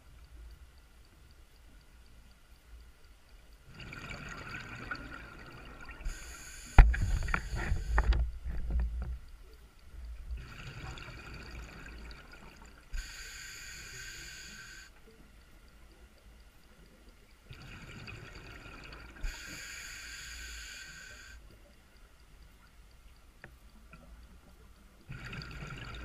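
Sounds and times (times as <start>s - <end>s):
bubbling exhaust underwater: 3.7s - 8.6s, 25.1s - 26.0s
hissing regulator inhalation: 6.0s - 8.1s, 12.9s - 15.0s, 19.2s - 21.4s.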